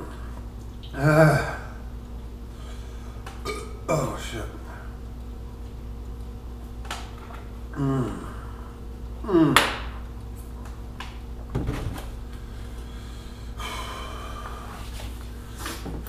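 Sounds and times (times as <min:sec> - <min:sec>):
man groaning and exhaling: 0:00.9 - 0:01.8, 0:07.7 - 0:08.6, 0:09.2 - 0:09.7.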